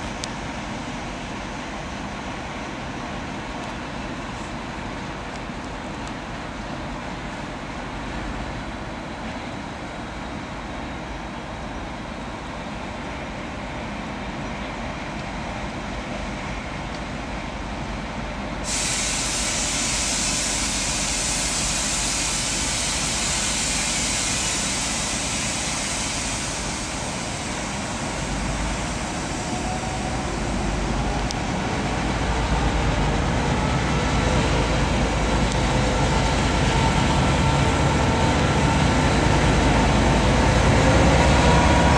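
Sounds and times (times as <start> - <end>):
diesel locomotive engine: 0.0 - 41.9
loud hiss of air: 18.5 - 41.9.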